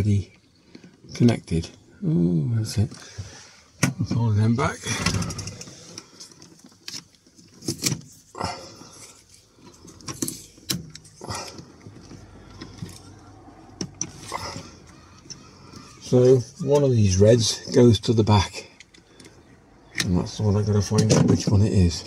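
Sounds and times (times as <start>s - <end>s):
hands handling wires: 5.1s - 22.0s.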